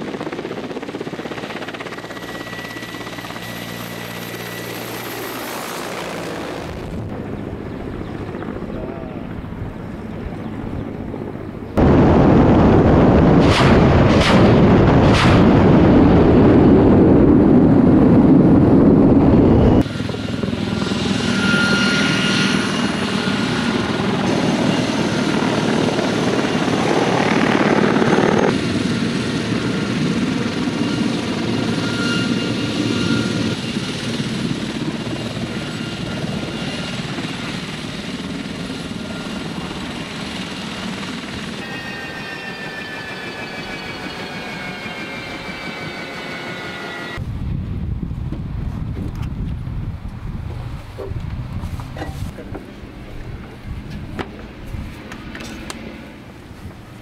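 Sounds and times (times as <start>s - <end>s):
helicopter rotors and turbine whine: 0.0s - 57.0s
loud rushing noise: 11.8s - 17.3s.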